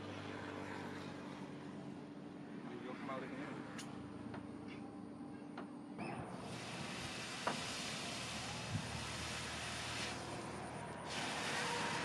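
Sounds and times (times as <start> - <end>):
forge fire crackling: 6.4 - 12.0.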